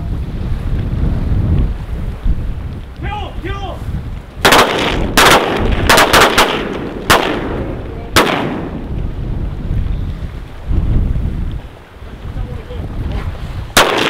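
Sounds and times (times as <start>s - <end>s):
shotgun shots: 4.4s - 8.8s, 13.8s - 14.0s.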